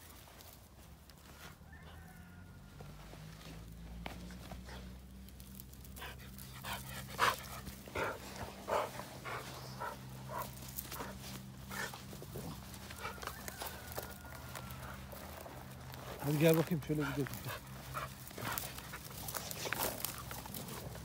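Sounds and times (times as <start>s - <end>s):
dog panting: 5.9s - 13.4s, 17.0s - 21.0s.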